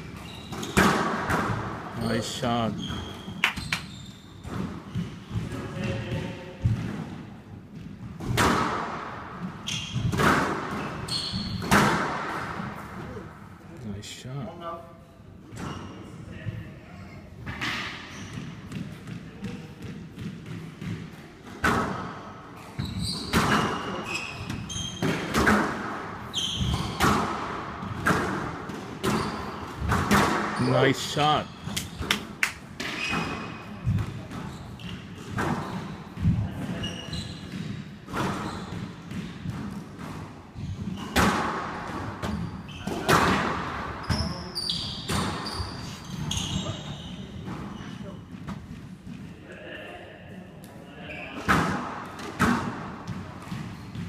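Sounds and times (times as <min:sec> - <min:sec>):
shoes squeaking on wooden floor: 0:00.0 - 0:00.9, 0:02.0 - 0:05.4, 0:09.6 - 0:10.2, 0:10.8 - 0:11.7, 0:22.8 - 0:25.4, 0:26.3 - 0:27.1, 0:29.0 - 0:29.7, 0:32.8 - 0:36.1, 0:36.7 - 0:38.8, 0:44.0 - 0:48.8
squash ball hits: 0:00.5 - 0:01.8, 0:07.8 - 0:13.0, 0:17.5 - 0:24.0, 0:25.0 - 0:30.7, 0:31.6 - 0:36.8, 0:37.5 - 0:44.2, 0:51.4 - 0:54.0.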